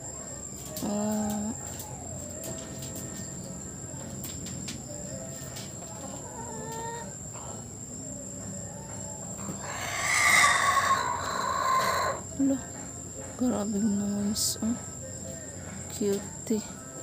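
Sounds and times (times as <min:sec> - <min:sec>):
rooster crowing: 0:00.0 - 0:12.4, 0:14.8 - 0:17.0
chickens clucking softly: 0:00.2 - 0:12.3.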